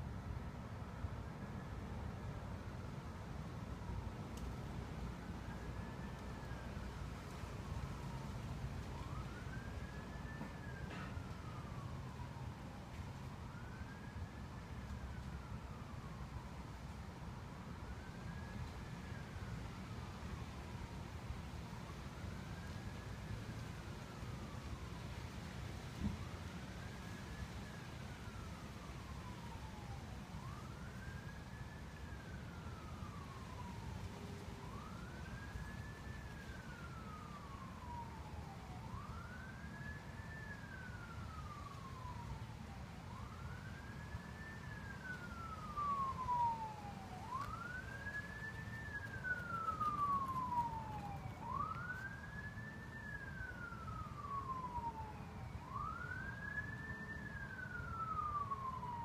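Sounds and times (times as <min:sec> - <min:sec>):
siren wailing: 0:08.8 - 0:12.5, 0:28.2 - 0:59.0.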